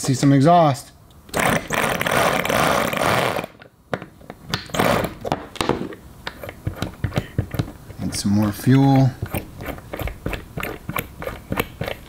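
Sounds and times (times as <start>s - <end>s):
electric starter motor spinning: 1.3s - 3.6s.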